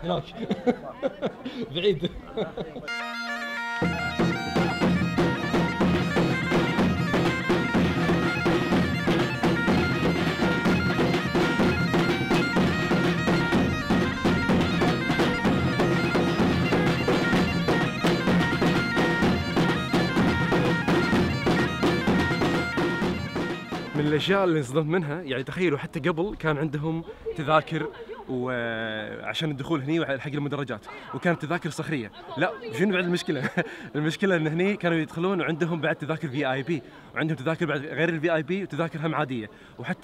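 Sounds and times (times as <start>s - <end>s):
bagpipe playing: 2.9s - 24.2s
drum strokes: 3.8s - 24.5s.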